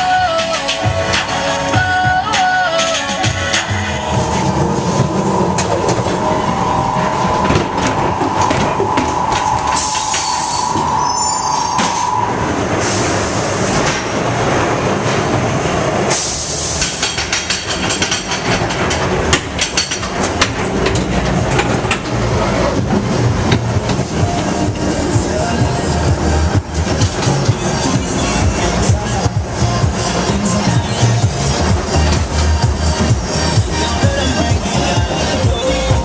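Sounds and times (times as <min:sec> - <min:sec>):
ride car clattering along track: 0:00.0 - 0:36.0
steady high tone: 0:02.1 - 0:12.8.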